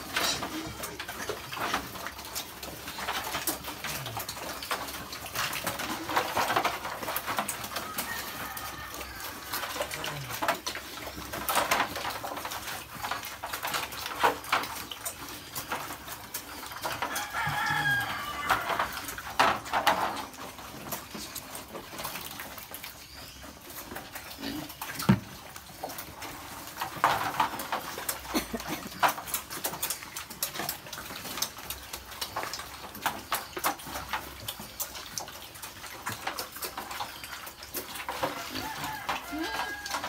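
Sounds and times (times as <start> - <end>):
piglets slurping and chomping: 0.0 - 40.0.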